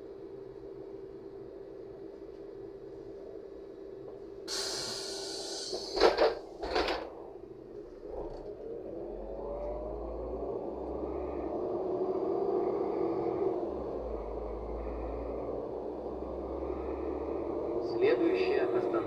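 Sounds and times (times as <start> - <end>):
air hiss of bus doors: 4.5 - 6.4
bus engine rising in pitch: 4.5 - 6.4, 7.2 - 19.0
bus door thuds: 5.8 - 7.1.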